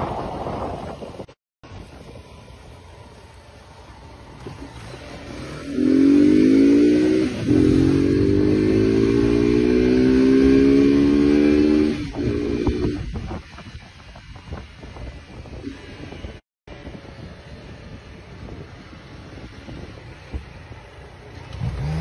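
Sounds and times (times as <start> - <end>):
wind noise: 0.0 - 2.8, 4.3 - 22.0
motorcycle engine revving: 3.9 - 13.6, 21.1 - 22.0.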